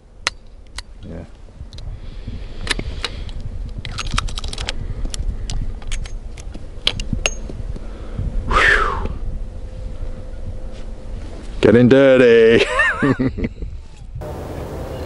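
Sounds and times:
short whoosh: 8.5s - 9.2s.

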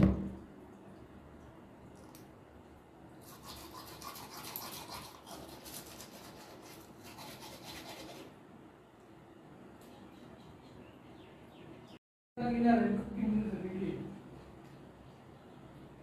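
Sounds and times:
toothbrush scrubbing teeth: 3.2s - 8.3s.

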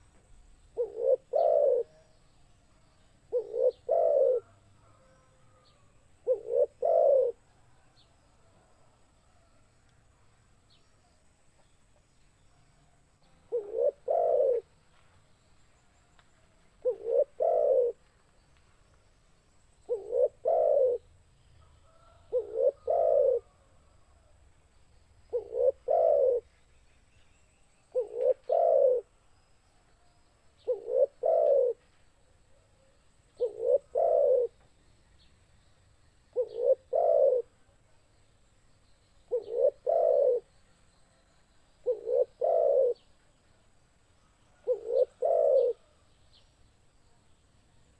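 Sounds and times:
dove cooing: 0.7s - 2.1s, 3.3s - 7.4s, 13.5s - 14.7s, 16.8s - 18.0s, 19.9s - 23.7s, 25.3s - 26.5s, 27.9s - 29.1s, 30.6s - 31.8s, 33.4s - 34.6s, 36.3s - 37.6s, 39.3s - 40.5s, 41.8s - 43.0s, 44.6s - 46.0s.

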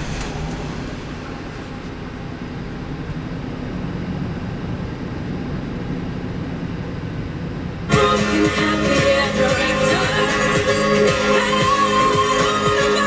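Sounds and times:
car engine idling: 0.0s - 13.0s.

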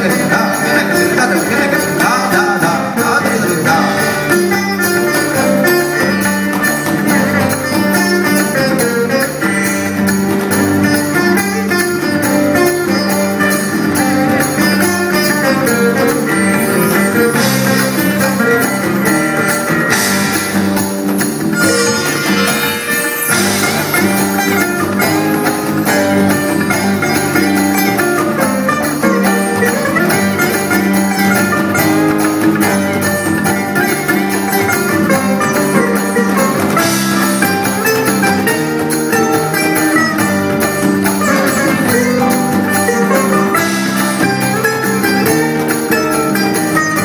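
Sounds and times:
acoustic guitars: 0.0s - 47.0s
cajon and drums beat: 0.0s - 47.0s
sitar: 0.0s - 47.0s.

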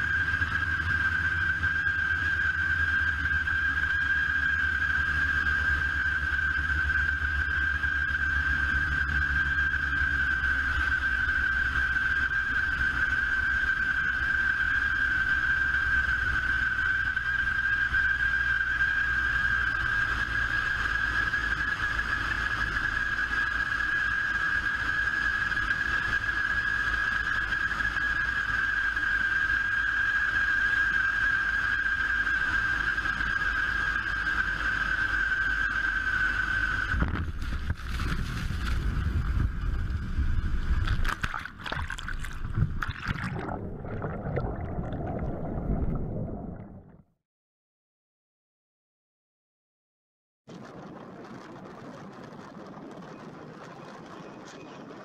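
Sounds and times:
propeller plane engines droning: 0.0s - 47.0s
muffled underwater gurgling: 40.8s - 47.1s.

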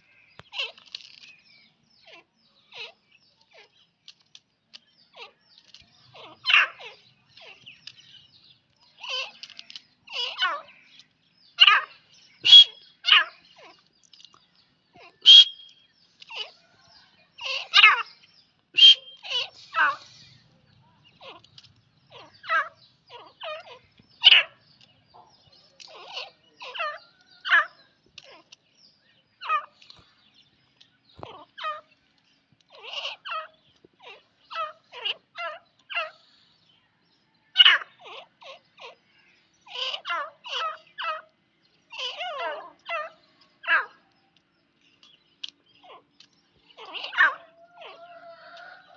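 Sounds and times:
francolins chattering calls: 0.0s - 48.9s
loud sharp bird notes: 11.6s - 13.5s, 15.2s - 16.0s, 18.8s - 20.5s.

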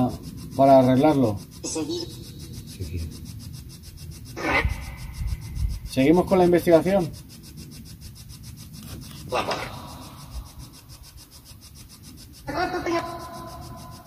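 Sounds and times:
radio static with ticking: 0.0s - 14.0s
steady tone: 0.0s - 14.0s
voice-like snippets: 1.6s - 3.2s, 4.3s - 5.4s, 9.2s - 10.6s.

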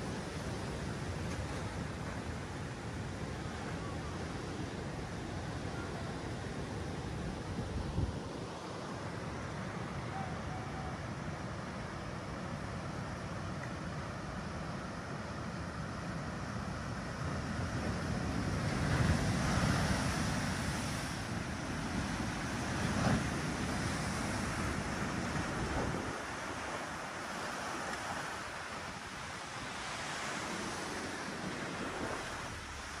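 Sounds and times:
water rushing: 0.0s - 33.0s
wind buffeting microphone: 7.1s - 8.5s, 17.4s - 33.0s.

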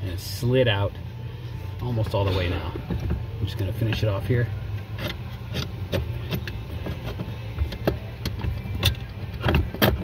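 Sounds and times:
steady low hum: 0.0s - 10.0s
metal bolt clicks and knocks: 4.9s - 10.0s.

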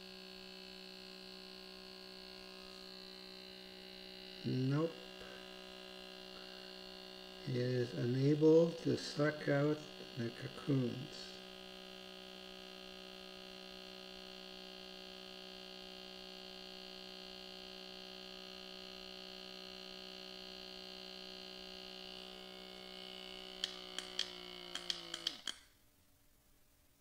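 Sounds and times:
small pump motor humming: 0.0s - 25.7s
sharp clicks: 23.6s - 25.7s.

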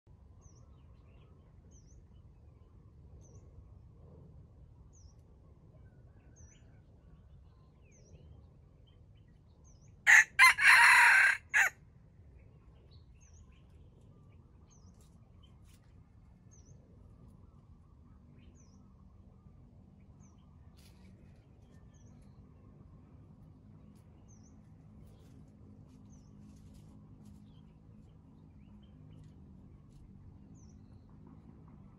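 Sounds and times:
rooster crowing: 10.1s - 11.8s.

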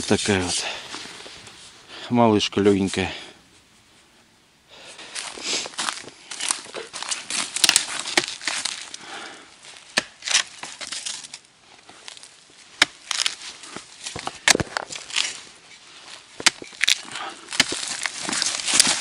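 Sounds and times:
boots crunching through snow and leaves: 5.1s - 9.0s, 17.7s - 19.0s
twigs cracking: 5.1s - 19.0s.

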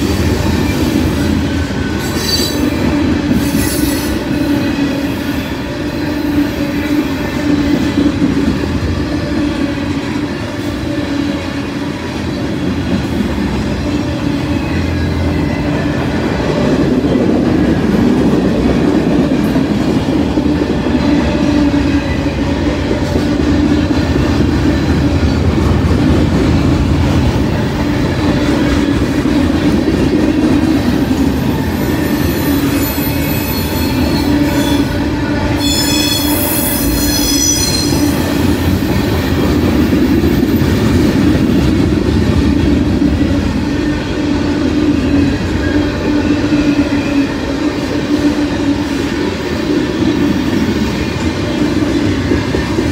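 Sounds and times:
train wheels squealing: 0.0s - 7.6s, 31.0s - 40.7s, 43.6s - 47.7s
train wheels rumbling and clattering: 0.0s - 52.9s.

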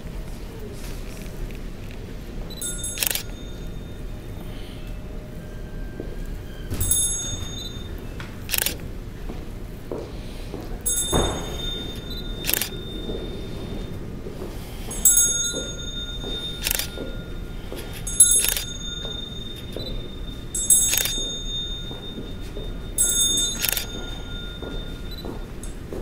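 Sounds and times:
hand bell ringing: 2.5s - 4.4s, 6.7s - 8.7s, 10.8s - 26.0s.

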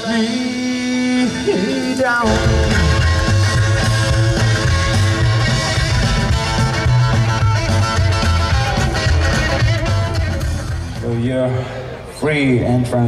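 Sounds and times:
rock and roll band playing: 0.0s - 11.3s
double bass line: 2.2s - 11.2s.

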